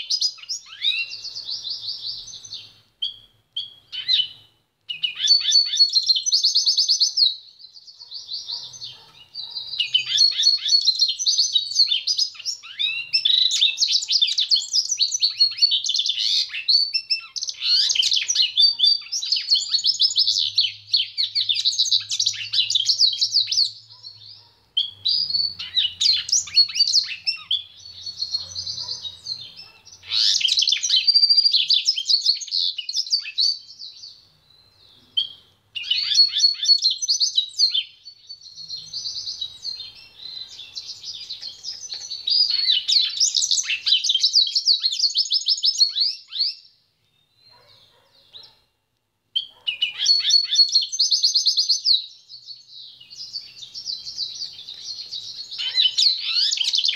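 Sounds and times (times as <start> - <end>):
bird twittering and trilling: 0.0 - 48.7, 49.4 - 56.9.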